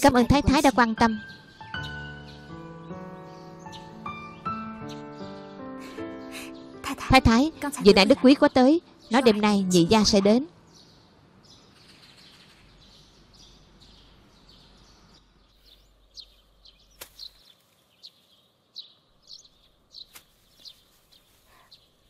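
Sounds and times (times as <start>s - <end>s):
small birds chirping: 0.0s - 22.0s
trowel striking soil: 17.0s - 17.4s.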